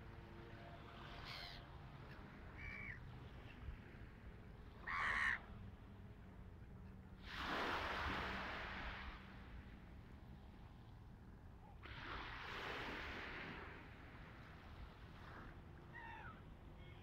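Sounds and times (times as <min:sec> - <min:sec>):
gulls calling: 0:02.6 - 0:03.0, 0:15.9 - 0:17.0.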